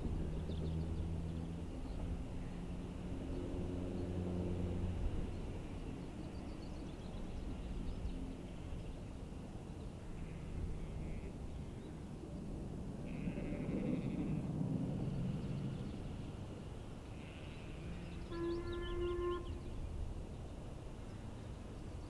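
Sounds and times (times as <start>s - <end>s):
distant steam locomotive rumble: 0.0s - 22.0s
faint bird chirps: 17.3s - 19.7s.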